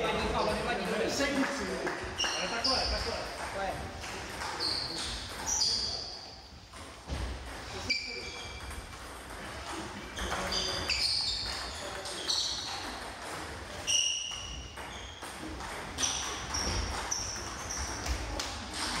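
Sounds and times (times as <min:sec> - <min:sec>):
table tennis balls clicking: 0:06.6 - 0:19.0.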